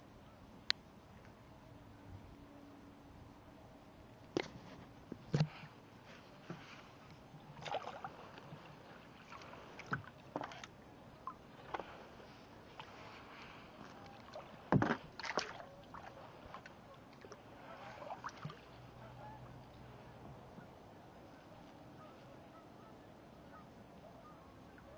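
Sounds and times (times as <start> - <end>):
kayak paddle splashing: 4.4 - 20.1
water sloshing: 4.4 - 20.1.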